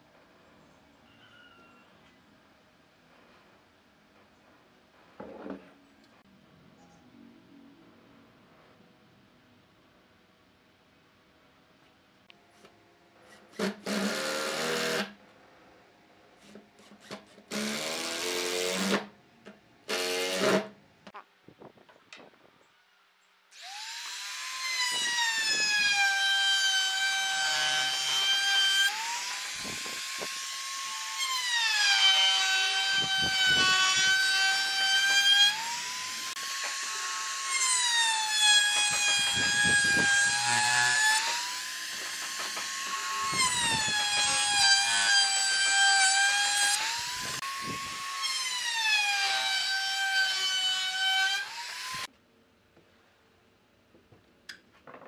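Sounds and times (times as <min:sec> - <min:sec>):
router whining: 0:23.6 - 0:52.1.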